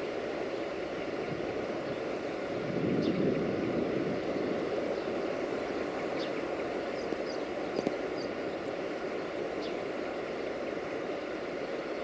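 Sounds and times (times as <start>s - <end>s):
low outdoor rumble: 0.0s - 12.0s
faint bird chirps: 6.0s - 8.7s, 9.6s - 9.8s.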